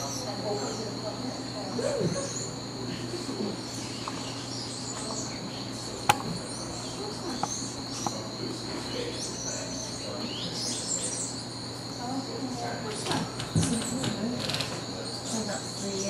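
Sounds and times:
sharp click: 0:06.1 - 0:06.4.

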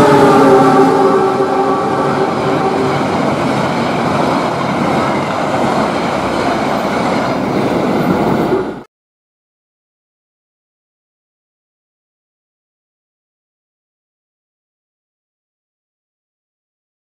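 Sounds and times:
locomotive horn: 0:00.0 - 0:03.7
train wheels running on rail: 0:00.0 - 0:08.9.

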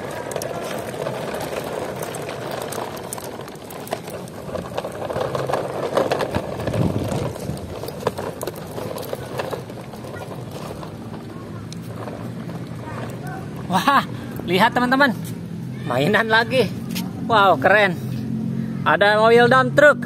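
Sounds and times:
small clicks and rattles: 0:00.0 - 0:14.6
plastic wheels rumbling on concrete: 0:00.0 - 0:20.0.

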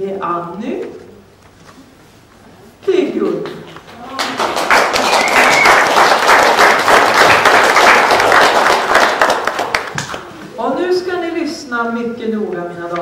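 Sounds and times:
audience applauding: 0:03.9 - 0:10.3.

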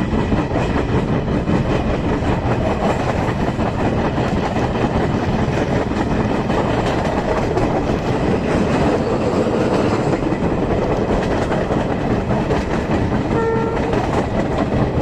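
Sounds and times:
train wind and wheel noise: 0:00.0 - 0:15.0
wheels clattering on rails: 0:00.0 - 0:15.0
train horn blast: 0:13.3 - 0:14.2.

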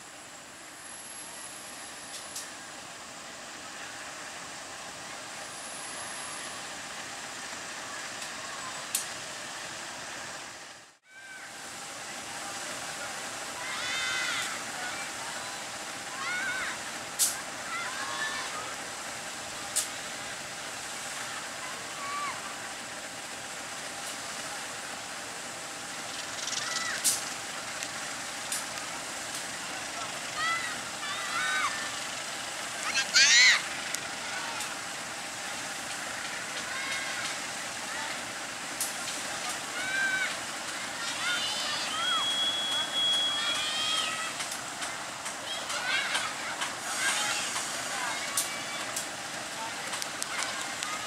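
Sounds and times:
diesel locomotive engine running: 0:00.0 - 0:51.0.

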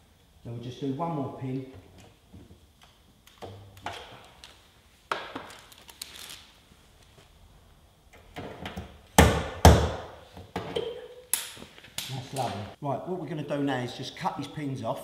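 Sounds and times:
loud sharp knocks: 0:09.2 - 0:10.1.

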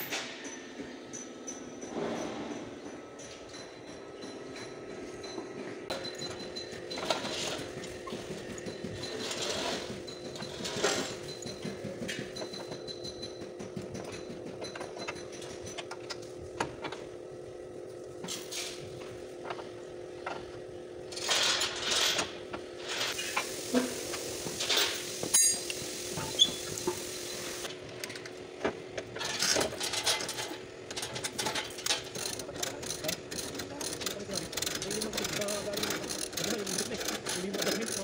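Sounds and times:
metal clanks and knocks: 0:00.0 - 0:17.2, 0:18.2 - 0:38.0
metal scraping: 0:06.6 - 0:12.6.

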